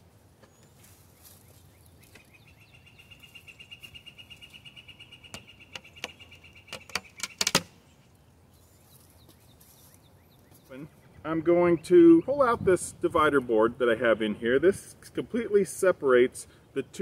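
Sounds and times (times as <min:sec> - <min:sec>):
wooden knocks and clicks: 0:05.3 - 0:07.7.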